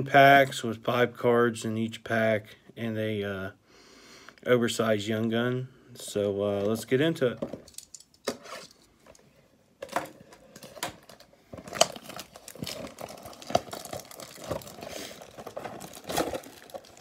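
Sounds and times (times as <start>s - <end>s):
plastic shrink wrap crinkling: 10.3s - 17.0s.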